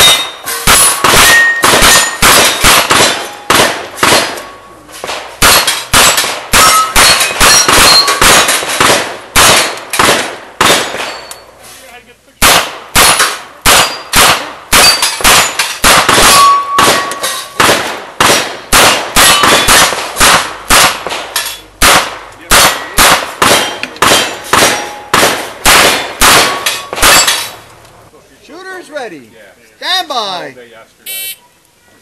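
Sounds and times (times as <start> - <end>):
steel plate clanging: 0.0 - 8.8, 21.3 - 21.7, 26.4 - 27.6.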